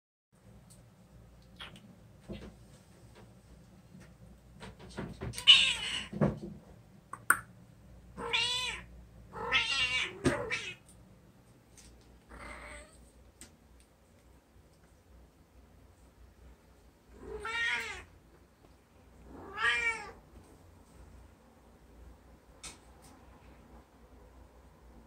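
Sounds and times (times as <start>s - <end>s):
cat meowing: 5.4s - 6.1s, 8.2s - 10.8s, 17.2s - 18.1s, 19.4s - 20.2s.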